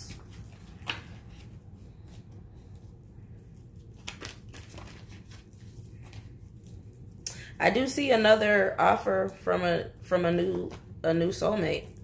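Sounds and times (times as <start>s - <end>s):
cards rustling: 0.0s - 7.2s
low room hum: 0.0s - 12.0s.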